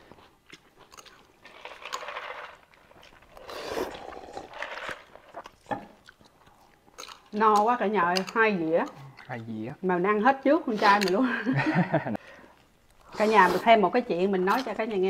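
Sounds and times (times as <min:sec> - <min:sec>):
spaghetti slurping and chewing: 0:00.0 - 0:07.4.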